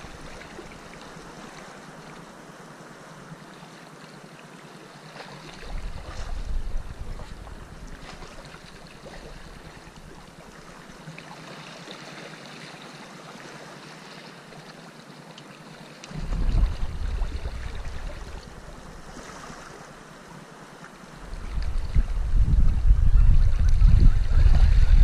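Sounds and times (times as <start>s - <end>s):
loud low rumble: 16.1s - 18.6s
waves washing against rocks: 16.1s - 20.0s.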